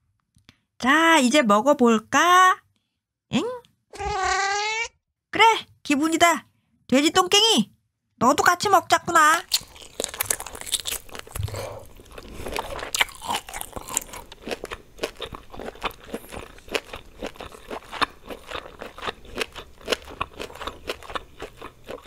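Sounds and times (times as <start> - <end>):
crunchy chewing: 9.4 - 22.0.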